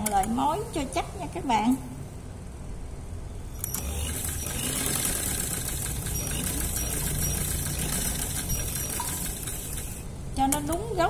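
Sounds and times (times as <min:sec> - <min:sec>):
sewing machine stitching: 0:03.6 - 0:10.1.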